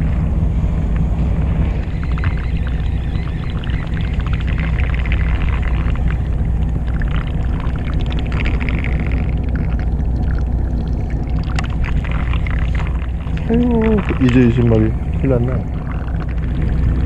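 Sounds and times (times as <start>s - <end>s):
boat engine droning: 0.0s - 17.0s
fishing reel ticking: 1.8s - 6.3s.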